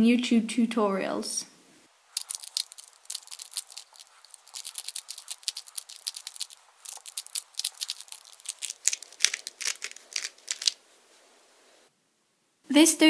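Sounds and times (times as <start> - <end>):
puzzle cube plastic clicks: 2.2 - 10.8.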